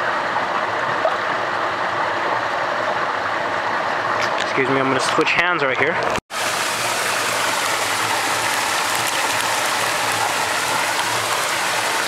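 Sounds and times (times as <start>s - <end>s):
river water rushing: 6.3s - 12.0s.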